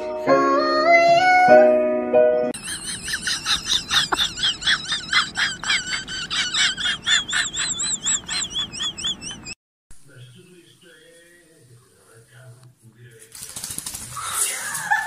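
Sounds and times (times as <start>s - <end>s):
animal chirping: 2.6s - 9.6s.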